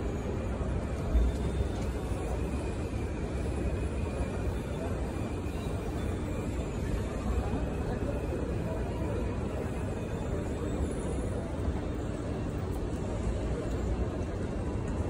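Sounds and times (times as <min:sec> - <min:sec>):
faint murmur of voices: 0:00.0 - 0:15.0.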